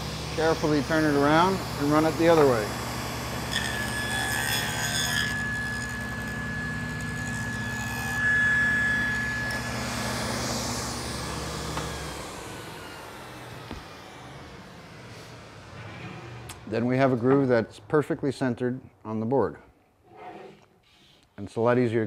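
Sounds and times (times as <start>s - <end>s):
saw coasting down: 0.0s - 17.8s
table saw cutting with whine: 0.0s - 18.3s.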